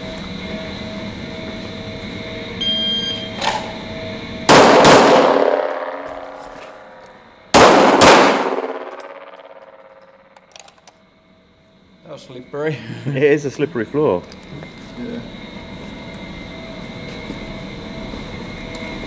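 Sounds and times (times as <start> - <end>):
steady hum: 0.0 - 19.0
pistol shots echoing: 4.5 - 6.4, 7.6 - 9.7.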